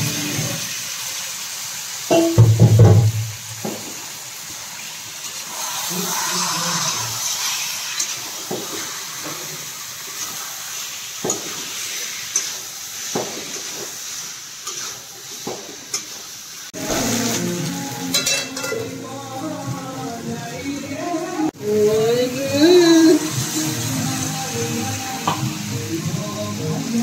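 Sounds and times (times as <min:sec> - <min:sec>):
kitchen pots and utensils clinking: 0:02.1 - 0:04.0, 0:18.1 - 0:19.0
steady hiss: 0:03.0 - 0:20.0.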